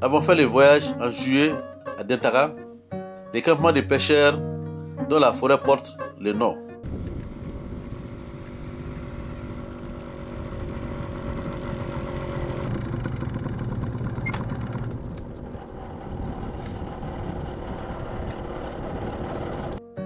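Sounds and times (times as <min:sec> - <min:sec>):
small motorcycle engines: 0:06.8 - 0:19.8.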